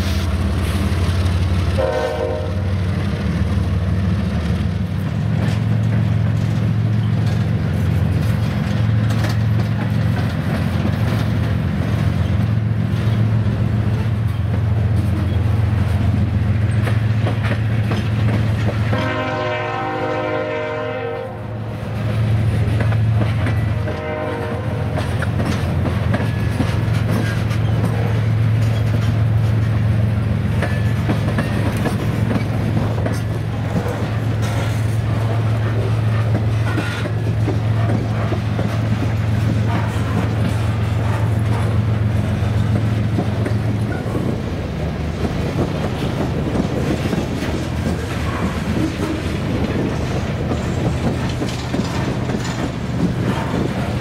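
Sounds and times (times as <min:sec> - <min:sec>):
train wheels rumbling on rail: 0:00.0 - 0:54.0
train horn tone: 0:01.7 - 0:02.8, 0:18.8 - 0:21.7, 0:23.7 - 0:25.1.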